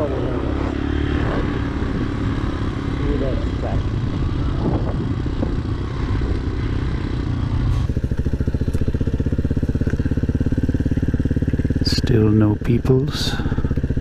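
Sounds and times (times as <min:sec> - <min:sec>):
motorcycle engine running: 0:00.0 - 0:14.0
dirt bike engine rapid beat: 0:04.6 - 0:14.0.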